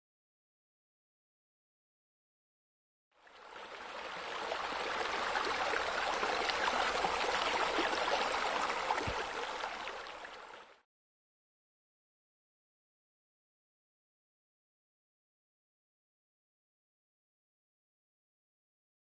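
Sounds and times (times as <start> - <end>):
running water stream: 3.2 - 10.8.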